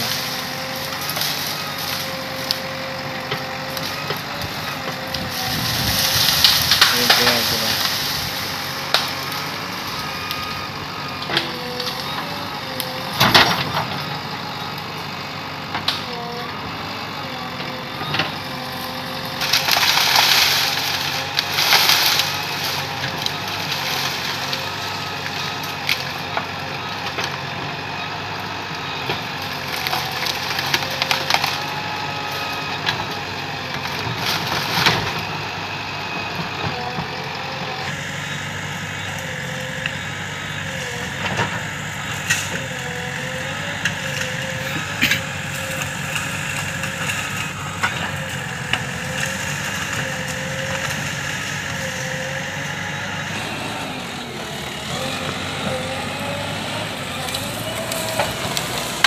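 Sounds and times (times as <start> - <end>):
bamboo stalks cracking: 0.0 - 9.5, 19.3 - 26.5, 43.8 - 51.8, 57.3 - 59.0
diesel engine running: 0.0 - 59.0.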